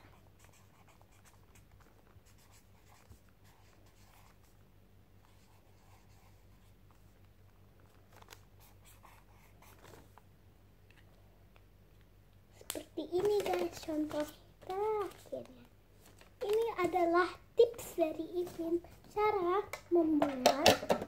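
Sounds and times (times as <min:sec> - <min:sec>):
marker scratching on paper: 0:00.0 - 0:04.6, 0:05.2 - 0:07.1, 0:08.6 - 0:10.0
low steady hum: 0:00.0 - 0:21.0.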